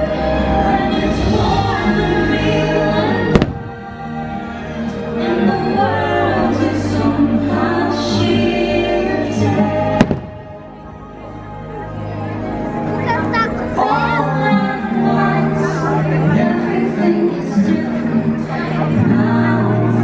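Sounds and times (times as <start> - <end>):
voices singing over music: 0.0 - 20.0
firework bangs: 3.3 - 3.9, 10.0 - 10.6.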